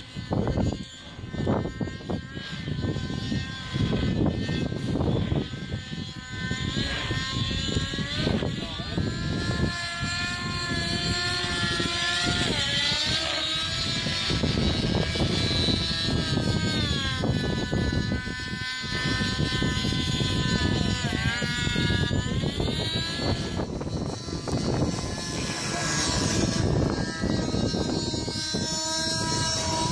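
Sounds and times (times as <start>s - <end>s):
rc helicopter engine whining: 0.0s - 29.9s.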